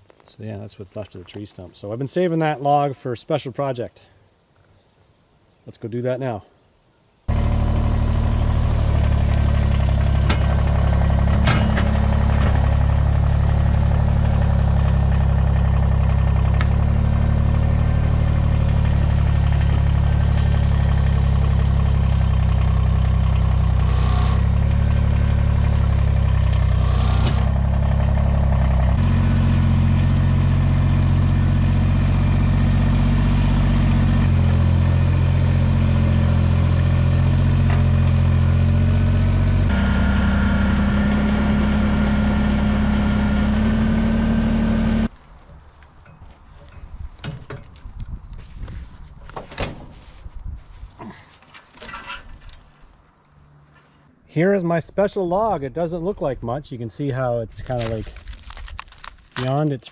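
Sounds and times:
vehicle engine running: 7.3 - 45.1.

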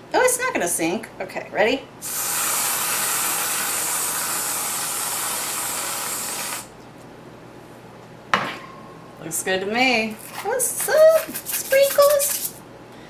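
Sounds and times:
aerosol can spraying hiss: 2.0 - 6.7.

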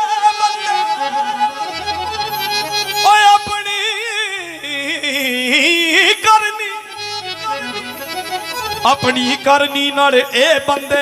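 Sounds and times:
reedy keyboard melody: 0.0 - 11.0
bass notes: 1.7 - 3.6, 7.0 - 9.5.

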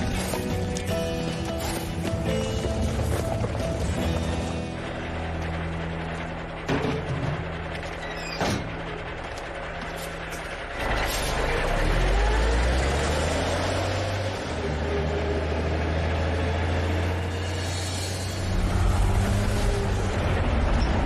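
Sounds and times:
truck engine idling and revving: 0.0 - 21.0.

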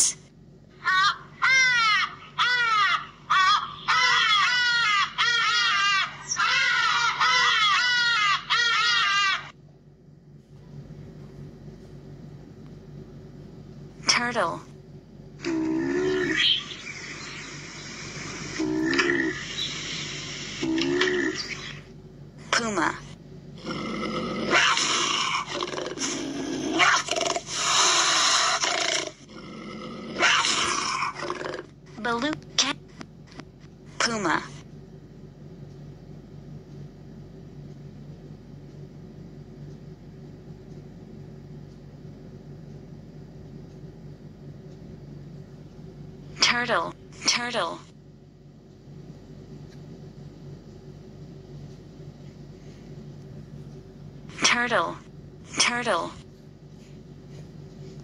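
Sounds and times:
ibis calls through a speaker: 0.8 - 9.5, 46.4 - 47.9, 54.3 - 56.2.

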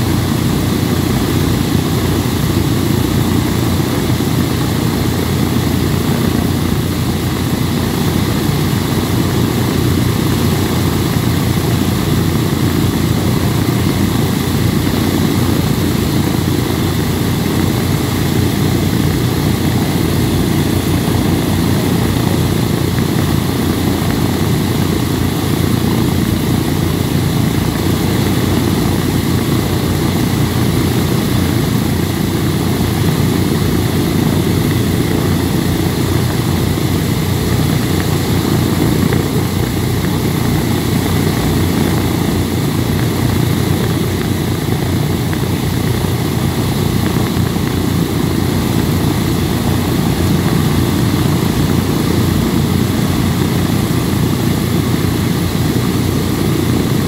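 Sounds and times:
radial aircraft engines idling: 0.0 - 57.0.

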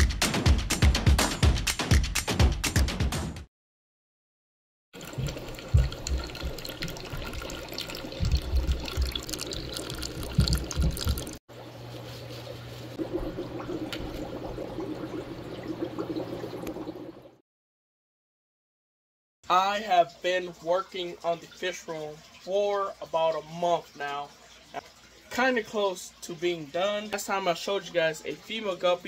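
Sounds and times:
aquarium equipment hum: 5.0 - 17.4
water running and splashing: 5.0 - 17.4, 19.7 - 29.0.

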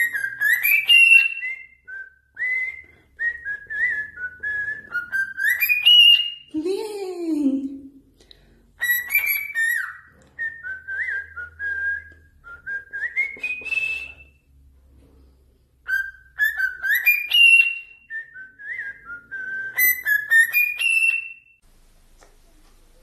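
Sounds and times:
parrot whistling a tune: 0.0 - 6.5, 8.8 - 14.4, 15.8 - 21.6.

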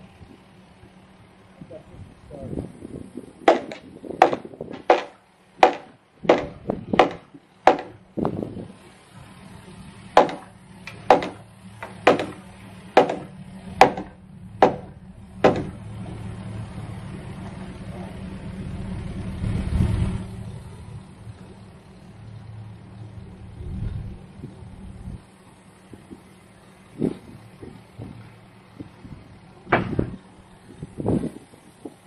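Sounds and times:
excavator engine idling: 0.0 - 32.0
hammer blows on timber: 3.4 - 8.4, 10.2 - 15.8.

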